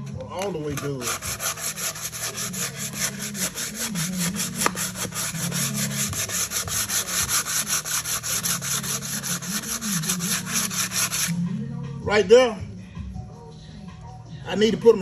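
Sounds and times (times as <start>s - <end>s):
sandpaper scratching on steel: 0.5s - 11.4s.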